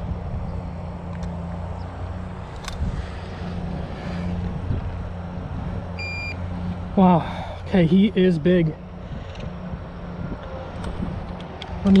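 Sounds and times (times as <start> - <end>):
wind buffeting microphone: 1.8 - 6.1, 8.1 - 12.0
sharp click: 2.5 - 2.8.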